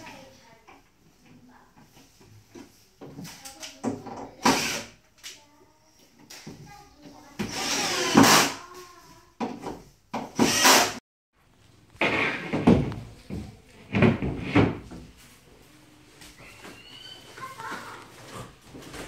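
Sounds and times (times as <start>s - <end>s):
wooden board scraping and thumping: 12.0s - 13.0s.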